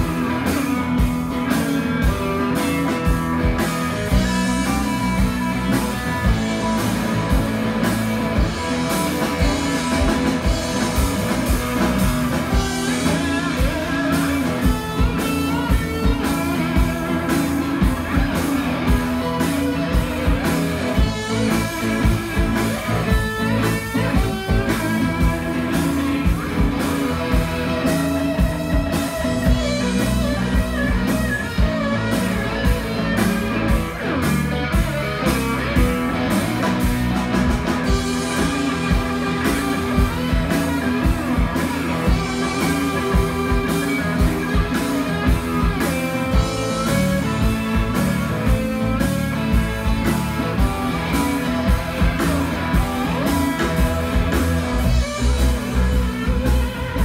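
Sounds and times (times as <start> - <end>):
blues band playing: 0.0 - 57.0.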